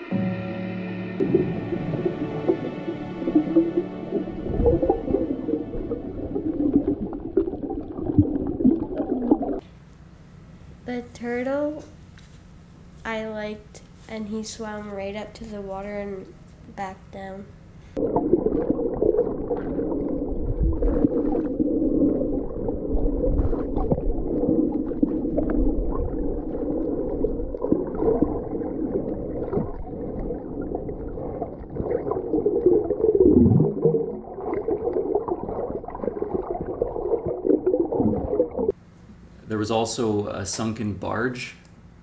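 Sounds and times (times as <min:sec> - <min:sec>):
low falling groan: 0:00.0 - 0:07.6
underwater gurgling water: 0:01.2 - 0:09.6, 0:18.0 - 0:38.7.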